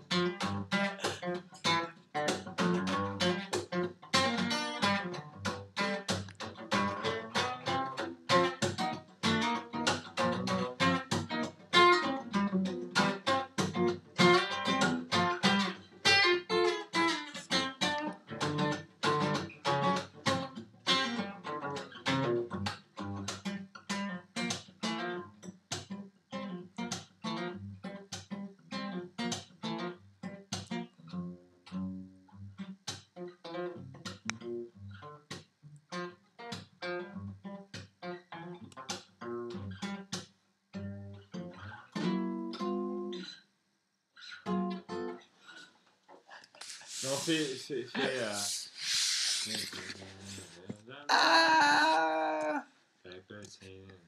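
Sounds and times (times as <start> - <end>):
acoustic guitar strumming: 0.0 - 23.2.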